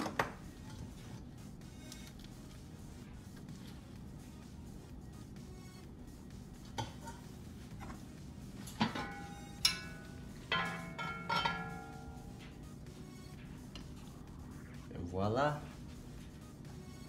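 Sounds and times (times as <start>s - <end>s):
cast-iron lid clanking on pot: 10.5s - 11.9s.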